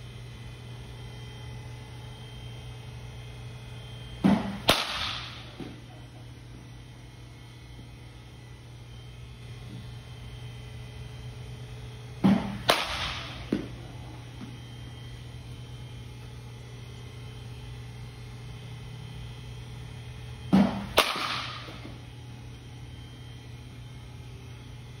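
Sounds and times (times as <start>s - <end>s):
steady low hum: 0.0s - 25.0s
baseball bat hitting balls: 4.2s - 6.0s, 12.2s - 14.6s, 20.5s - 22.0s.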